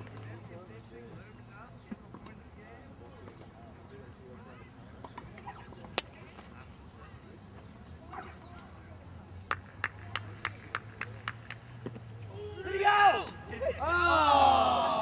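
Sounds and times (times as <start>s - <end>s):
faint distant voices: 0.0s - 15.0s
sharp handclaps: 9.5s - 11.7s.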